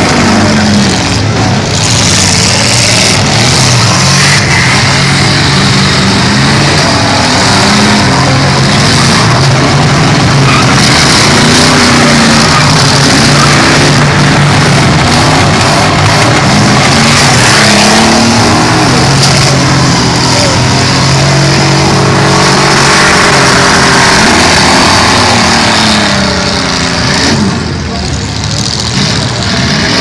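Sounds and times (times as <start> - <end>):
car engines revving hard: 0.0 - 30.0.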